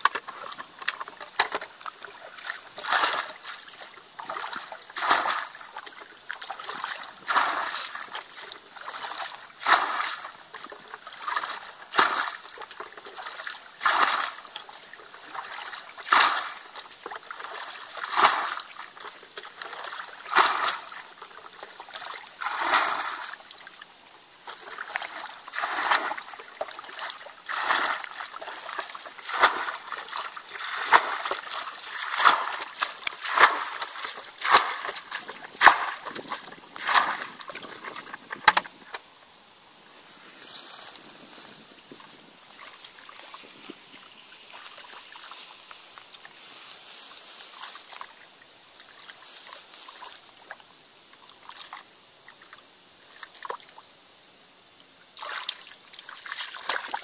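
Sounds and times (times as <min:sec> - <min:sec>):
water splashing from bucket: 0:00.0 - 0:39.0, 0:55.2 - 0:57.0.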